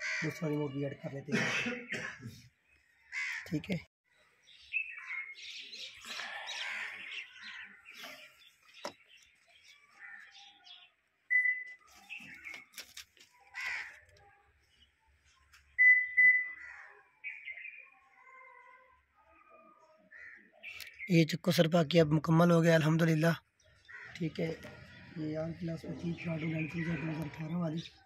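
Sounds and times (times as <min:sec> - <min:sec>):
short electronic beeps: 0:11.3 - 0:11.8.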